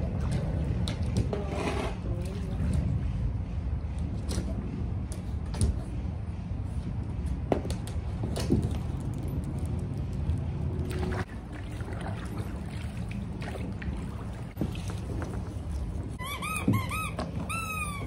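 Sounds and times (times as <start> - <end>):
water sloshing and splashing: 0.0 - 6.0, 8.2 - 16.2
low rumble: 0.0 - 16.2.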